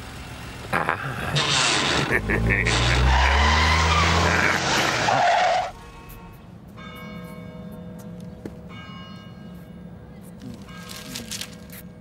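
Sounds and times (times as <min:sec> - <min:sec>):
car engine revving: 0:00.5 - 0:05.8
tyre squeal: 0:01.4 - 0:05.8
soft chiming bell-like music: 0:06.7 - 0:11.1.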